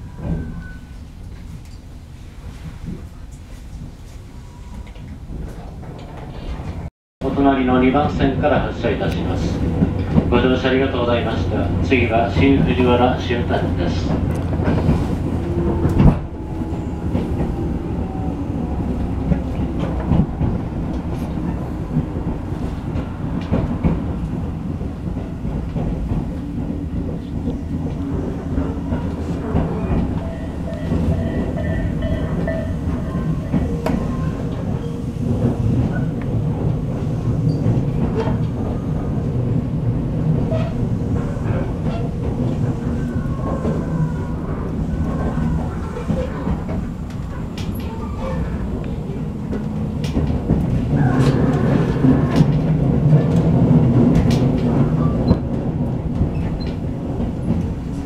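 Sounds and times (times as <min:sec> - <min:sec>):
clickety-clack of rail joints: 0:00.0 - 0:58.0
train wheels rumbling: 0:00.0 - 0:58.0.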